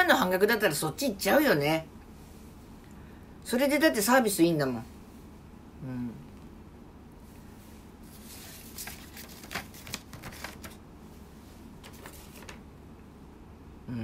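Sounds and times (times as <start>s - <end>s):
faint room hum: 0.0s - 14.0s
rustling and clicks of handling: 11.8s - 12.6s.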